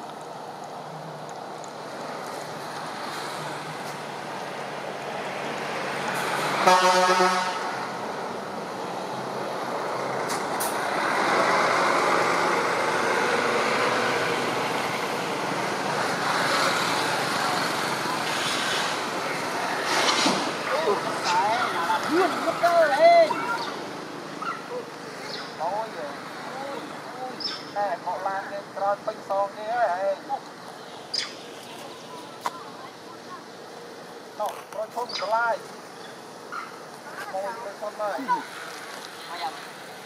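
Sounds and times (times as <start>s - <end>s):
road traffic: 0.0s - 40.0s
vehicle horn toot: 6.6s - 7.8s.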